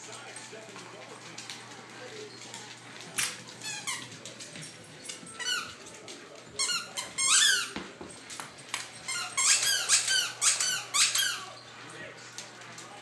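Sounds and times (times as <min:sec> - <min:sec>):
squeaky toy squeaking: 0:06.6 - 0:07.7, 0:09.1 - 0:11.5.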